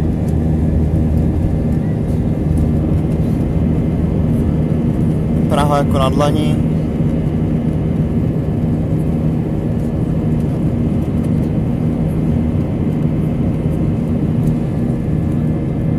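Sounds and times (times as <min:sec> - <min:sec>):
jet engines droning: 0:00.0 - 0:15.9.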